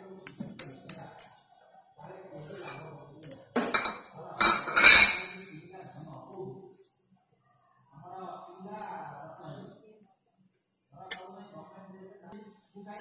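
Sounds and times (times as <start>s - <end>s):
utensils clattering against dish: 2.4s - 5.5s.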